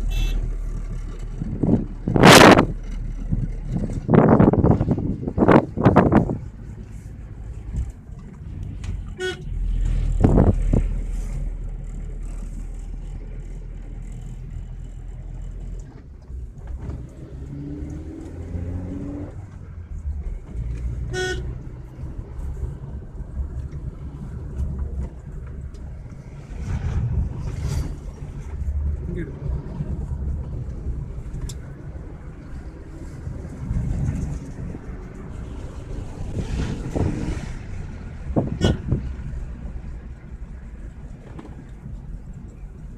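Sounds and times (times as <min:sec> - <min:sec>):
car horn toots: 0:00.0 - 0:00.5, 0:09.1 - 0:09.5, 0:21.1 - 0:21.6, 0:38.5 - 0:39.0
car engine and road rumble: 0:00.0 - 0:42.9.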